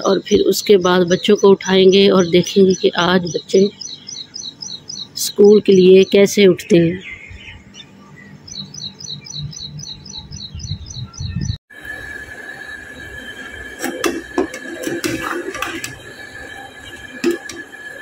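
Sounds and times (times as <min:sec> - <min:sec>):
small bird chirping: 0:00.8 - 0:11.6.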